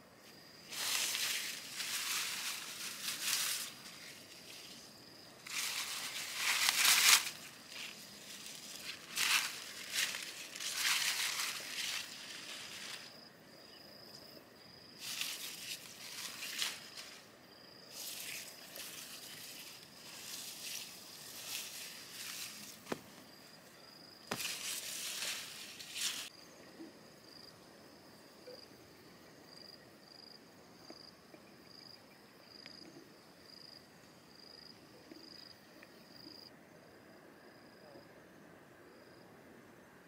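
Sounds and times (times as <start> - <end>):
leafy plants rustling and tearing: 0.7 - 13.2, 15.0 - 17.3, 17.9 - 23.2, 24.3 - 26.3.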